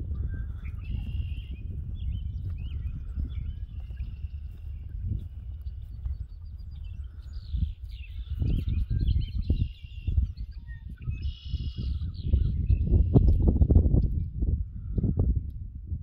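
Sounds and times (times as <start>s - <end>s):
songbirds chirping: 0.0s - 15.0s
footsteps in short grass: 0.4s - 10.0s.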